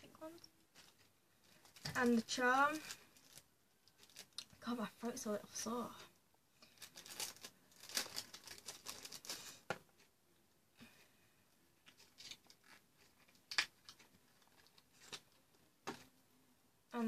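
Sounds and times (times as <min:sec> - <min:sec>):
packaging rustling: 0:00.6 - 0:04.6, 0:06.6 - 0:10.1, 0:11.8 - 0:16.1.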